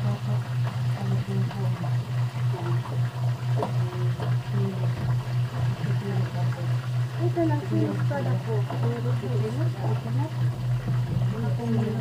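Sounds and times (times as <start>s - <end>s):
pulsing mechanical hum: 0.0s - 12.0s.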